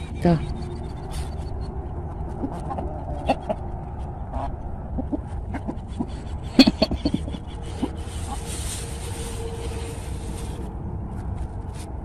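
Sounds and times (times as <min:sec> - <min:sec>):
chickens clucking: 0:00.0 - 0:08.8.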